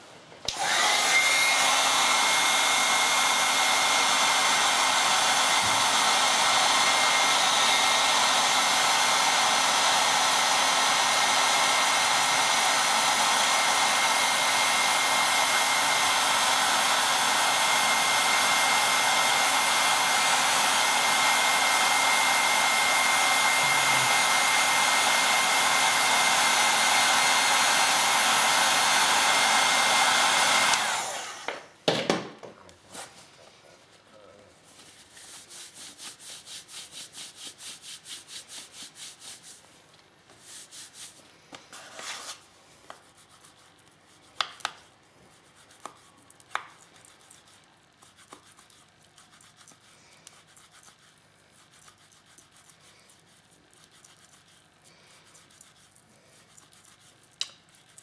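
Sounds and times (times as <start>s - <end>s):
heat gun blowing with high whine: 0.5s - 31.8s.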